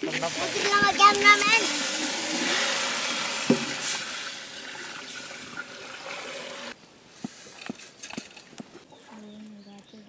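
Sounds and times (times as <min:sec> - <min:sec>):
water pouring into a pot: 0:00.0 - 0:06.8.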